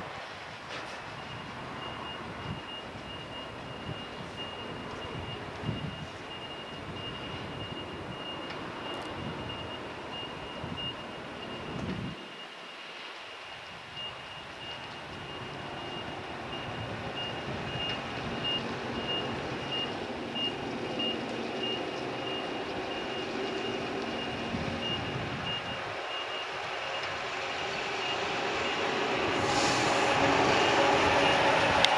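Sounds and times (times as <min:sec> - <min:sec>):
electric train rumbling: 0:00.0 - 0:31.9.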